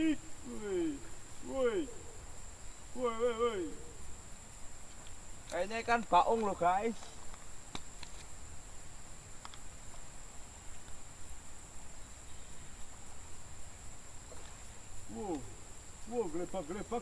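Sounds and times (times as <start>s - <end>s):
high thin hum: 0.0s - 17.0s
faint clicks: 9.4s - 10.0s.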